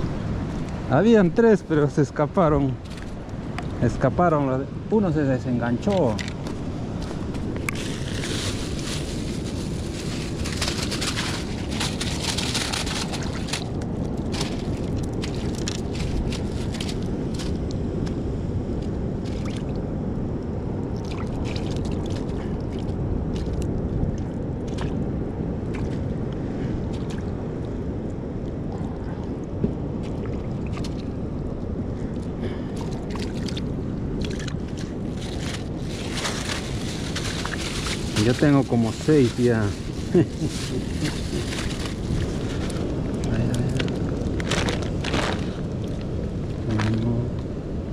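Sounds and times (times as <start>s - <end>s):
wind: 0.0s - 47.9s
plastic bag crinkling: 7.7s - 17.1s, 35.2s - 42.9s, 43.8s - 45.7s.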